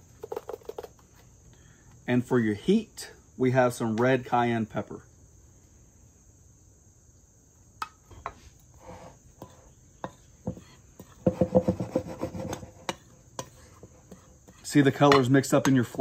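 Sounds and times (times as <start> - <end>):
spoon scraping and clinking: 9.4 - 11.2.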